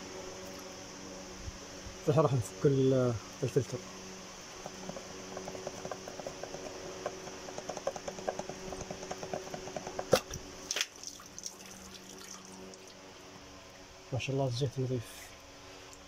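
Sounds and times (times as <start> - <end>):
sharp knocks: 4.6 - 10.4.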